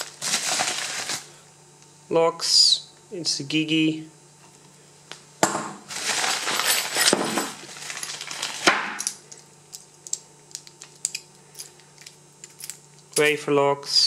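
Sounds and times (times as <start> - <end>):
plastic packaging rustling: 0.0 - 1.4, 5.9 - 8.8
metallic clicks of locks and keys: 9.8 - 13.3.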